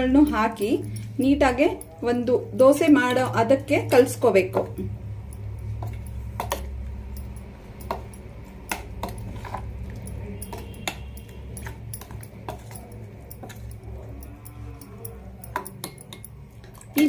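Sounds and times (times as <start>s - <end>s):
steady low hum: 0.0s - 17.0s
ladle scraping steel bowl: 7.8s - 17.0s.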